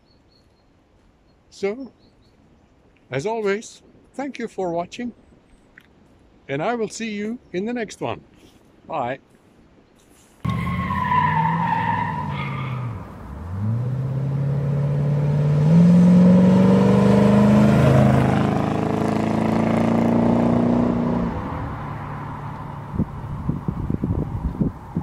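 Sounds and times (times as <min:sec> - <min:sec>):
car engine accelerating past: 0:10.5 - 0:23.1.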